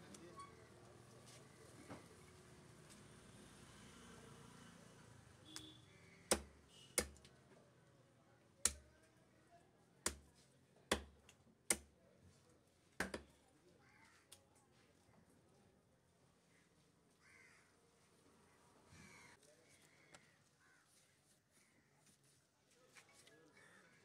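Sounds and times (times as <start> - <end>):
cleaver chopping on wooden block: 6.3 - 7.2, 8.6 - 8.8, 10.1 - 10.3, 10.9 - 11.9, 13.0 - 13.3.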